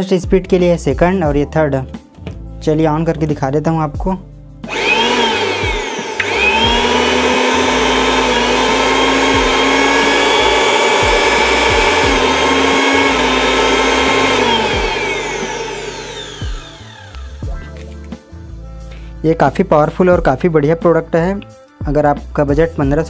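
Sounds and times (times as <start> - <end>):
mixer grinder motor whining: 4.7 - 17.9.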